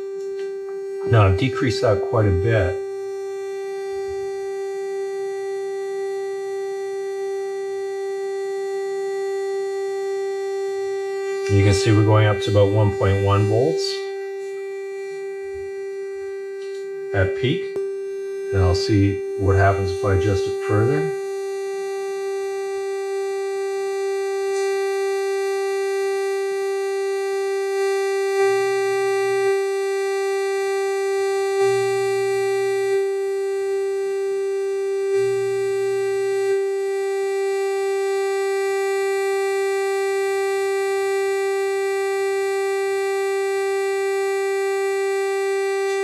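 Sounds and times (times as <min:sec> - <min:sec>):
short low hums: 0:00.0 - 0:05.8, 0:10.7 - 0:25.1, 0:31.4 - 0:39.6
synthesizer buzzy drone: 0:00.0 - 0:46.0.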